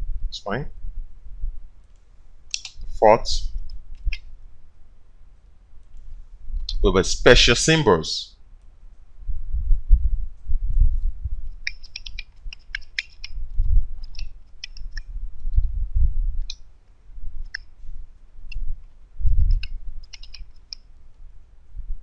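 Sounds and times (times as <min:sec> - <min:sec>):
computer keyboard typing: 0:11.6 - 0:13.4, 0:14.0 - 0:15.1, 0:18.5 - 0:20.9.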